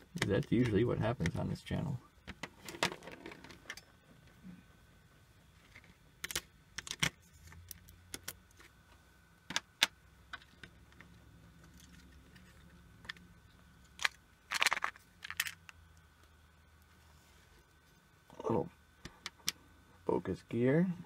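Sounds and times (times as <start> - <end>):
small plastic parts clicking: 13.9 - 15.8.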